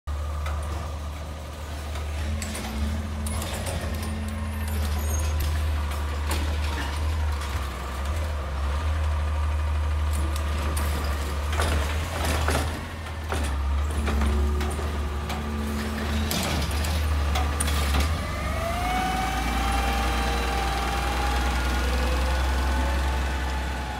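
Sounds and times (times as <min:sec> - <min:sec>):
diesel engine droning: 0:00.1 - 0:23.9.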